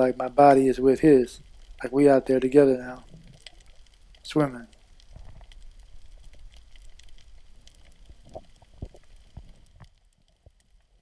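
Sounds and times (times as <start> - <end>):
underwater crackling and clicks: 0.0 - 11.0
low underwater rumble: 4.8 - 11.0.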